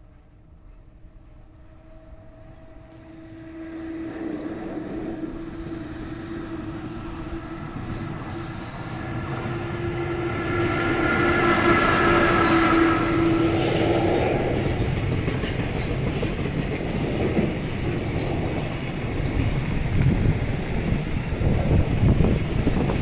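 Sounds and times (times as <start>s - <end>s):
electric locomotive humming: 0.0s - 23.0s
high whine: 1.8s - 14.9s.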